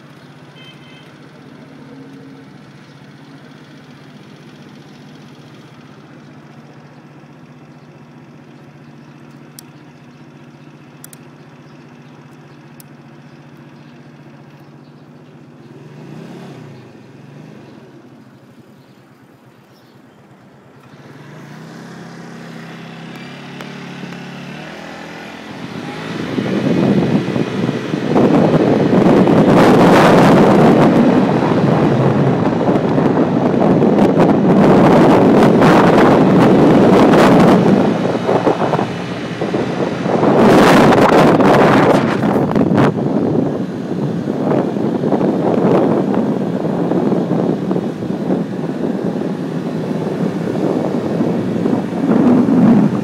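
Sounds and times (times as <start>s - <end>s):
scooter engine idling and revving: 0.0s - 53.0s
wind noise on microphone: 24.6s - 53.0s.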